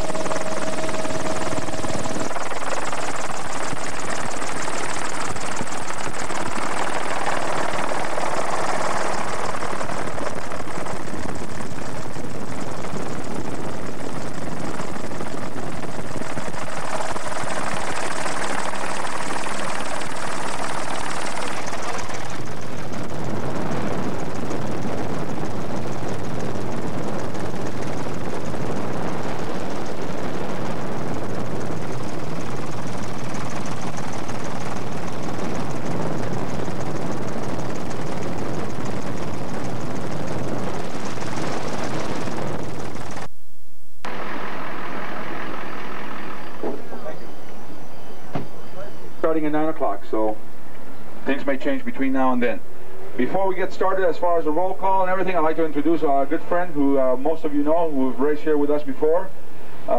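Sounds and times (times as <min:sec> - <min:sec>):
helicopter rotor and engine drone: 0:00.0 - 0:43.3, 0:44.0 - 0:59.9.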